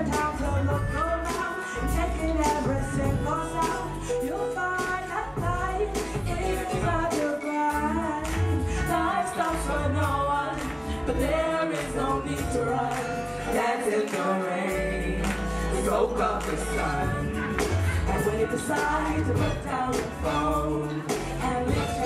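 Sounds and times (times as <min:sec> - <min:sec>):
vocalists singing: 0:00.0 - 0:22.0
deep pulsing bass line: 0:14.8 - 0:22.0.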